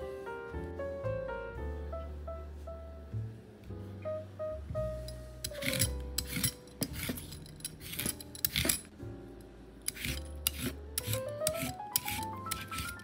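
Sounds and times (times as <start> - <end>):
peeler scraping cucumber skin: 5.5 - 8.9, 9.8 - 13.0.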